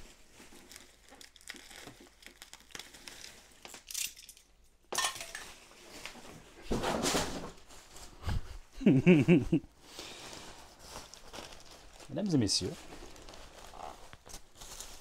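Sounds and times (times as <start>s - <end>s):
plastic wrapping crinkling: 0.0s - 4.4s, 9.8s - 15.0s.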